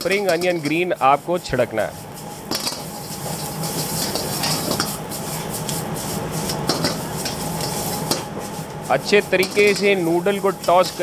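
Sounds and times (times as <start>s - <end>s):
metal ladle scraping a wok: 0.0s - 11.0s
noodles sizzling in a wok: 0.0s - 11.0s.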